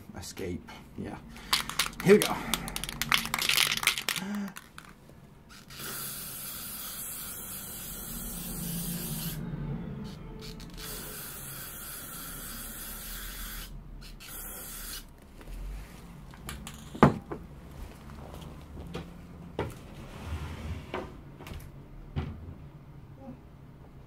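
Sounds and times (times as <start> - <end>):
aerosol can spraying: 5.5 - 9.4.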